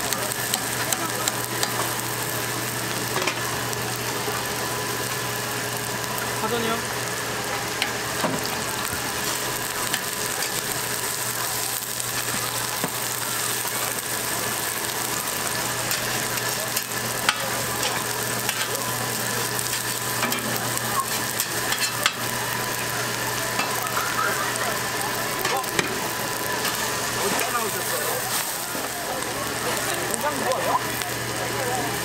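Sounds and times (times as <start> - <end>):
oil sizzling on a griddle: 0.0 - 32.0
metal spatula clicking on griddle: 0.1 - 1.8, 15.8 - 18.7, 21.4 - 22.2.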